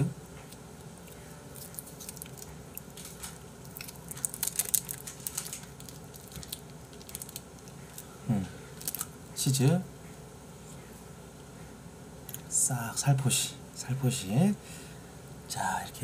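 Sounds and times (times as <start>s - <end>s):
person chewing food: 0.3s - 9.1s.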